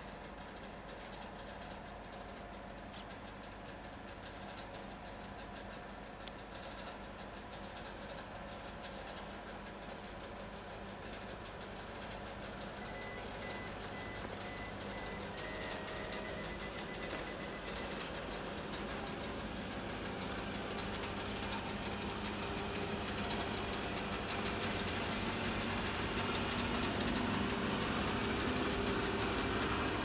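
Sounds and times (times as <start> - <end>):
electric locomotive humming: 11.8 - 30.0.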